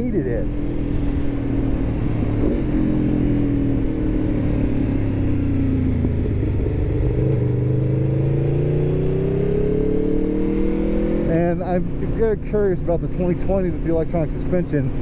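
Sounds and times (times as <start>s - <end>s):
wind rushing over microphone: 0.0s - 8.4s
motorcycle engine revving: 0.0s - 15.0s.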